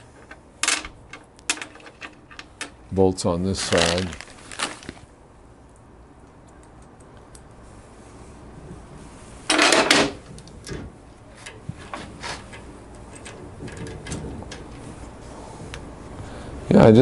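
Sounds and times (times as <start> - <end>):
small metal bolts clinking: 0.2 - 2.8.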